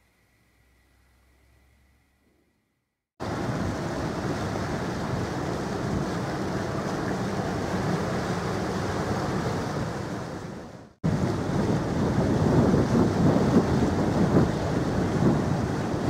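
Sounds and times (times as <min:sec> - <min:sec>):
river waves washing: 0:03.2 - 0:16.0
wind buffeting microphone: 0:11.0 - 0:16.0.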